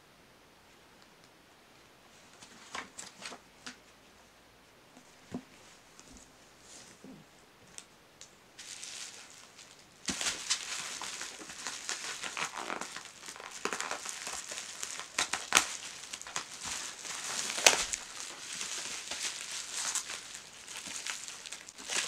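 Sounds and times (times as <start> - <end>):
plastic packaging crinkling and tearing: 8.6 - 22.0.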